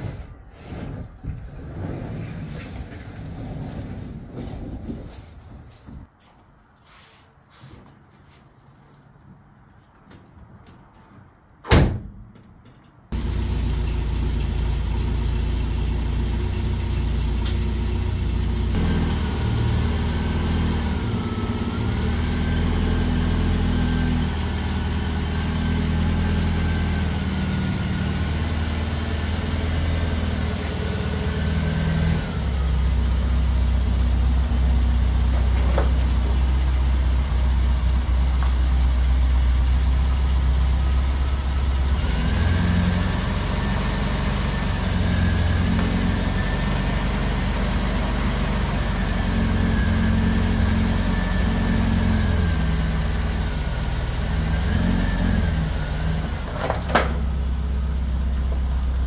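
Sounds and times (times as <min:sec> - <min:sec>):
car door shutting: 0:11.6 - 0:12.2
car engine starting and idling: 0:13.1 - 0:59.0.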